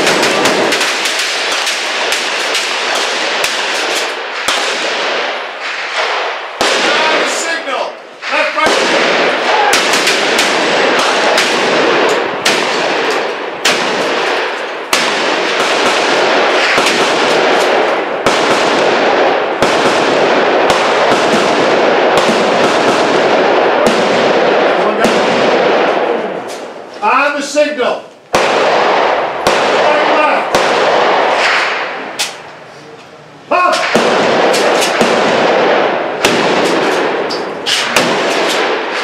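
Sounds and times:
shotgun blasts echoing: 0:00.0 - 0:26.8, 0:28.3 - 0:32.4, 0:33.6 - 0:39.0.

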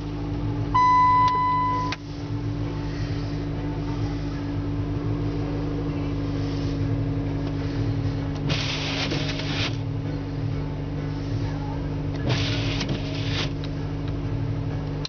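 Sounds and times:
car idling hum: 0:00.0 - 0:15.0
wipers scraping wet snow: 0:08.4 - 0:09.8, 0:12.2 - 0:13.6.

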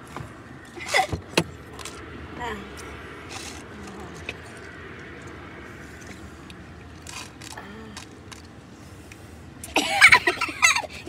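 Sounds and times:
car interior hum: 0:00.0 - 0:11.0
woman laughing loudly: 0:09.8 - 0:11.0.

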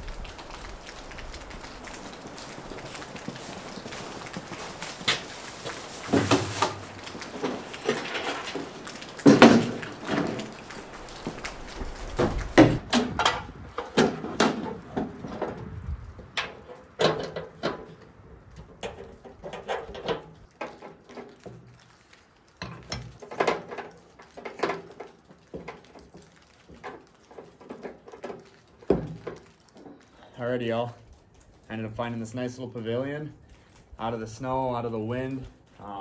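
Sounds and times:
camp stove knocks and clatter: 0:02.4 - 0:21.7, 0:22.6 - 0:29.5.

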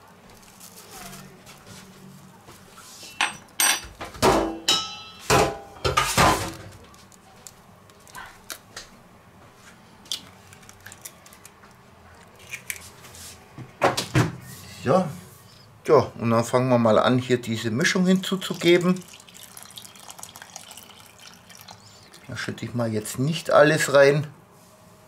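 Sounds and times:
metal spoon clinking on bowl: 0:04.7 - 0:05.3.

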